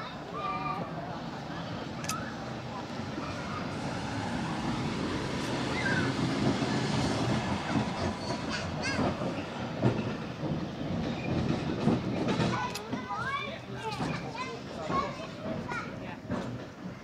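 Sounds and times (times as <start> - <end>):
tram rumbling past on rails: 0.0 - 17.0
wheels clicking over rail joints: 5.4 - 17.0.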